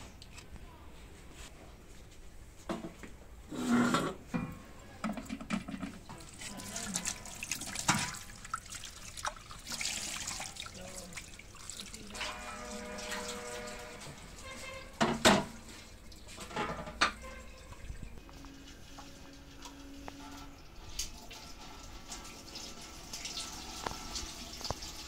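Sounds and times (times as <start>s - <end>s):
water splashing and dripping: 5.0s - 25.0s.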